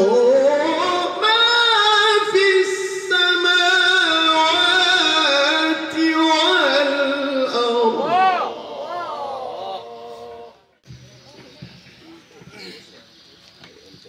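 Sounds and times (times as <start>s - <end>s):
man chanting melodically: 0.0s - 10.8s.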